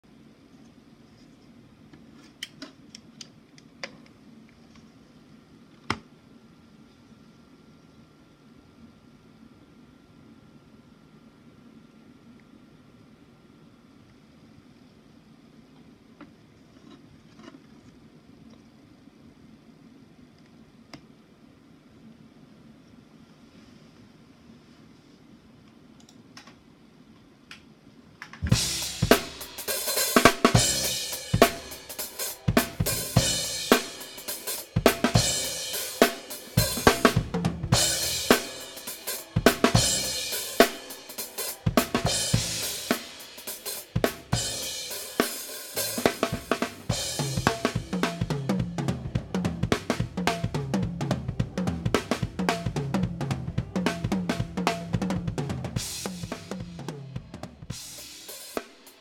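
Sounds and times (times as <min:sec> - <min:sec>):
low bass line: 0:28.4 - 0:29.4, 0:30.6 - 0:31.9, 0:32.5 - 0:33.7, 0:36.6 - 0:38.3, 0:39.7 - 0:40.3, 0:41.7 - 0:42.8, 0:46.5 - 0:57.8
drum kit playing: 0:28.4 - 0:59.0.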